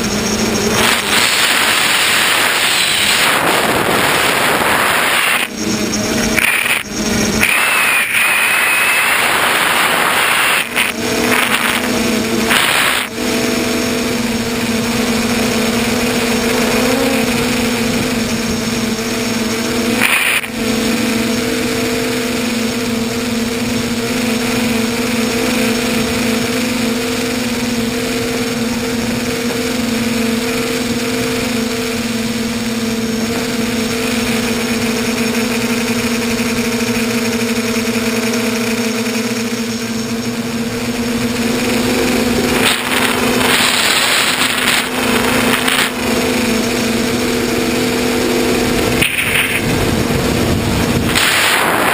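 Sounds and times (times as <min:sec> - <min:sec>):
rushing air: 0:00.0 - 0:13.6, 0:41.6 - 0:46.1, 0:48.4 - 0:51.9
drone motors and propellers humming: 0:00.0 - 0:51.9.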